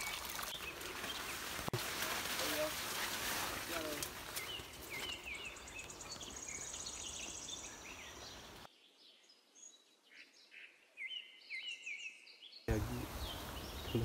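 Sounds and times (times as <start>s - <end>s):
rough rustling noise: 0.0s - 6.5s
small birds chirping: 0.0s - 14.0s.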